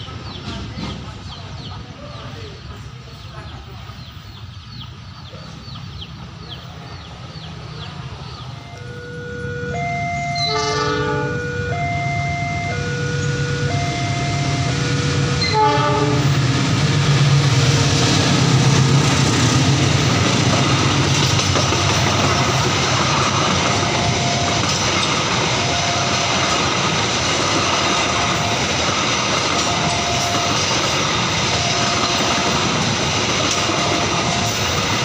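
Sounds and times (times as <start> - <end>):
locomotive engine rumble: 0.0 - 35.0
train wheels on rails: 0.0 - 35.0
two-tone crossing alarm: 8.4 - 16.5, 20.8 - 35.0.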